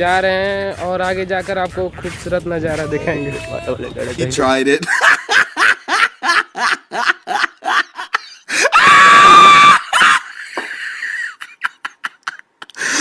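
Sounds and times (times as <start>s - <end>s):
man laughing: 2.9s - 13.0s
man's high cry: 8.6s - 10.3s.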